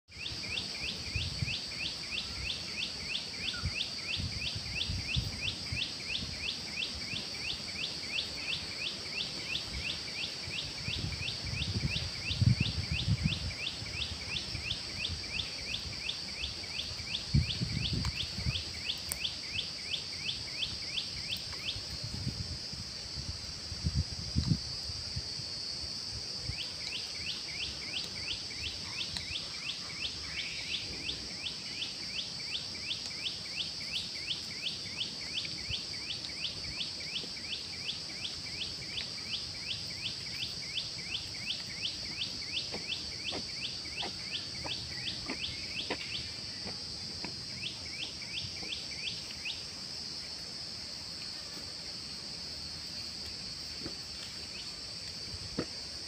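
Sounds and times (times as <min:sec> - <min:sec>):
short insect chirps: 0:00.1 - 0:56.0.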